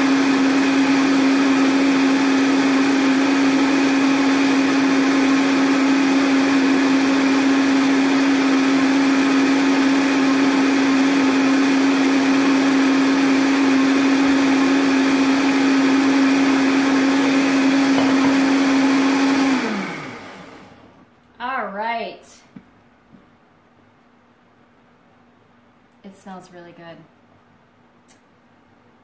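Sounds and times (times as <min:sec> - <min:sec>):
blender motor running: 0:00.0 - 0:21.0
blender motor winding down: 0:00.0 - 0:21.0.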